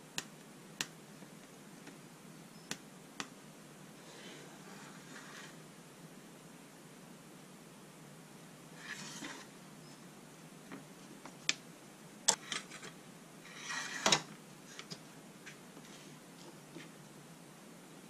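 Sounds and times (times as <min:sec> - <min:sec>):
wood rustling on cutting mat: 0:04.0 - 0:05.6, 0:08.8 - 0:09.5, 0:13.5 - 0:14.3.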